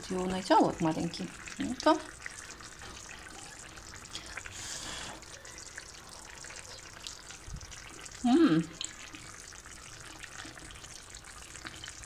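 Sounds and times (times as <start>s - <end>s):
sauce bubbling in a frying pan: 0.0s - 12.0s
pan hissing: 4.5s - 5.3s.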